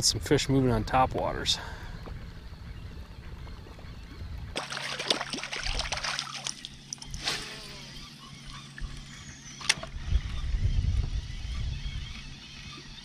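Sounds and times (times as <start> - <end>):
low wind rumble: 0.0 - 6.0, 9.8 - 12.9
water splashing and sloshing: 4.5 - 7.2.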